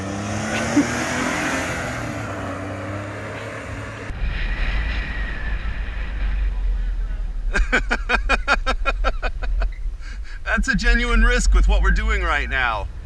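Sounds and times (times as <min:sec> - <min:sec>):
small truck engine: 0:00.0 - 0:08.0
tyre and road noise: 0:00.0 - 0:13.0.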